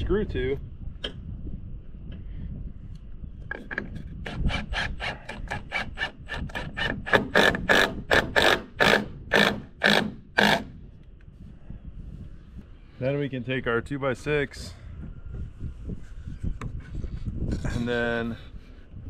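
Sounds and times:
wood rubbing and squeaking: 3.4s - 10.7s.

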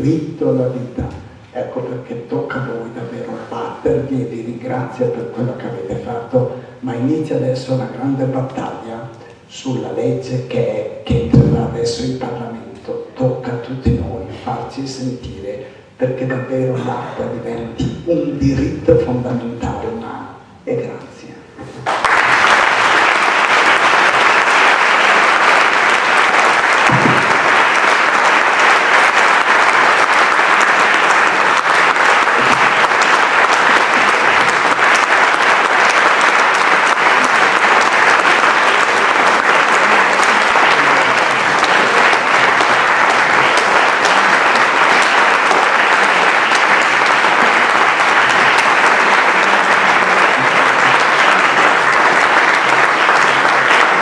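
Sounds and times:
audience applauding: 21.8s - 54.0s.

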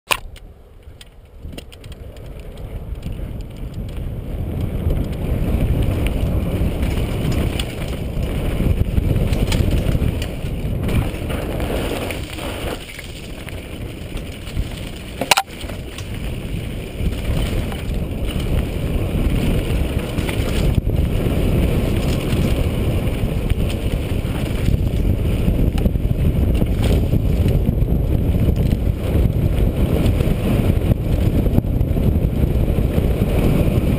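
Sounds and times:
sharp click: 0.1s - 1.9s, 15.2s - 15.5s
bike tyres rolling and rattling: 0.1s - 33.9s
wind rushing over microphone: 0.1s - 33.9s.

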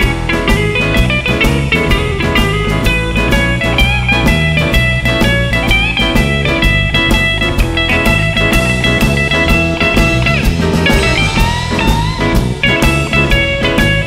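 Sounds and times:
blues band instrumental: 0.0s - 14.0s
electric guitar lead: 0.0s - 14.0s.

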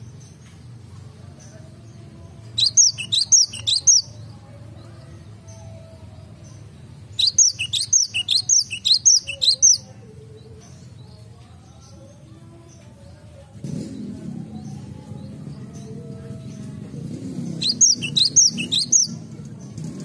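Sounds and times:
bird chirping: 2.5s - 13.0s, 17.4s - 20.0s.

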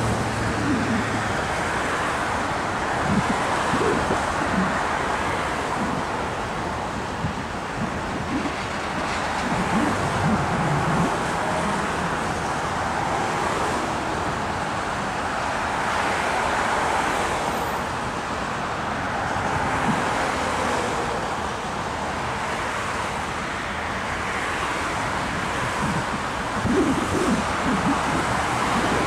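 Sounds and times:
train cars rumbling on rails: 0.0s - 17.4s.

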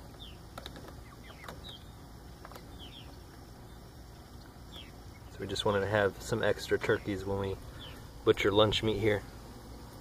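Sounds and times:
young poultry peeping: 0.0s - 5.4s.

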